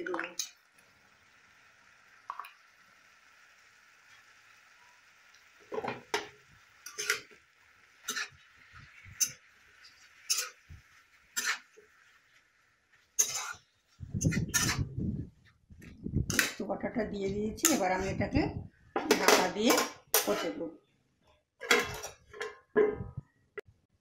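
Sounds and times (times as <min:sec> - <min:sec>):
metal spatula scraping metal pan: 0:06.8 - 0:07.4, 0:08.0 - 0:12.1, 0:13.2 - 0:13.6, 0:14.2 - 0:14.9, 0:17.6 - 0:18.3.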